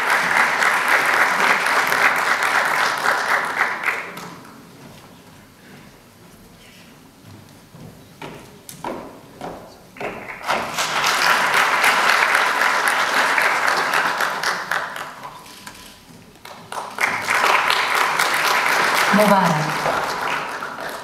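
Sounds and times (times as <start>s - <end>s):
audience applauding: 0.0s - 4.4s, 10.0s - 21.0s.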